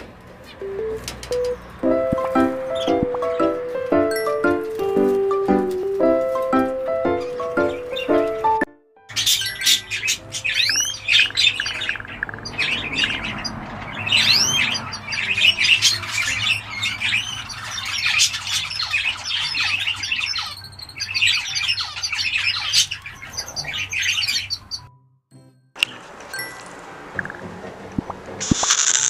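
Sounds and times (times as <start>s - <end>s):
bird chirps and whistles: 10.5s - 13.2s.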